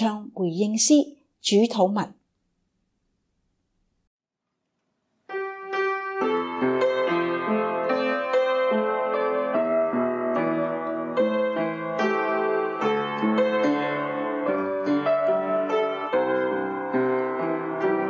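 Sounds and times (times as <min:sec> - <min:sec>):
piano playing hymn chords: 0:05.3 - 0:18.0.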